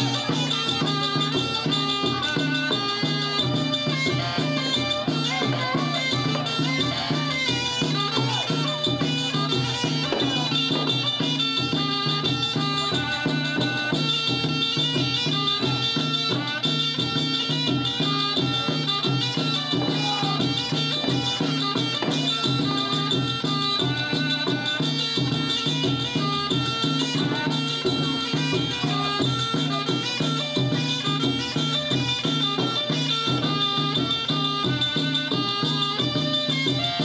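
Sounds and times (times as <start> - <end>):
driving drum rhythm: 0.0 - 37.0
reedy wind instrument melody: 0.0 - 37.0.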